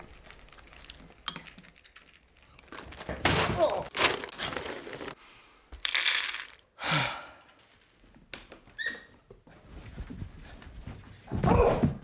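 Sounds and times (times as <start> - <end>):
dry kibble rattling in scoop: 5.8 - 6.6.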